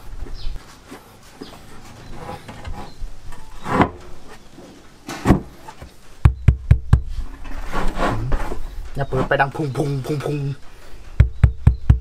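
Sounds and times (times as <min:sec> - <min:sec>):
knocks on wooden speaker box: 0:06.2 - 0:07.1, 0:11.2 - 0:12.0.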